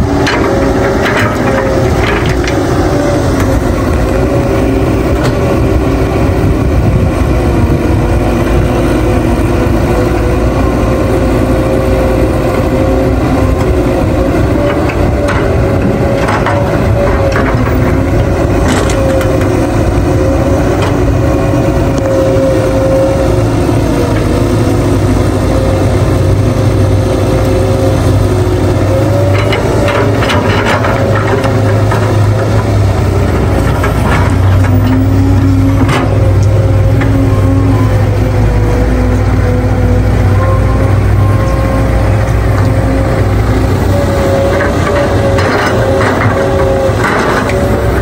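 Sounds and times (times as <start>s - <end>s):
excavator diesel engine: 0.0s - 48.0s.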